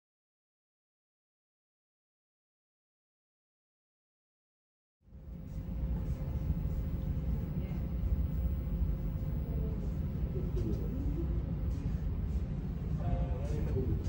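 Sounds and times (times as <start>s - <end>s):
steady low rumble: 5.1s - 14.0s
thin constant hum: 5.1s - 14.0s
faint voices: 5.6s - 14.0s.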